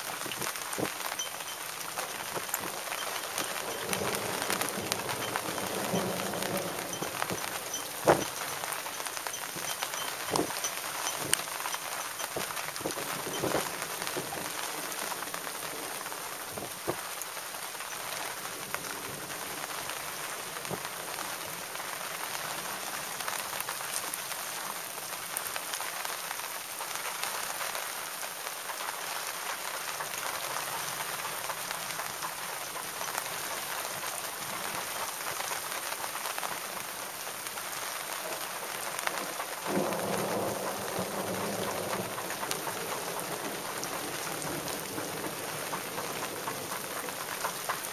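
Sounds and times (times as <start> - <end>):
thunder rumbling: 0.0 - 17.2, 38.3 - 47.9
steady rain falling: 0.0 - 47.9.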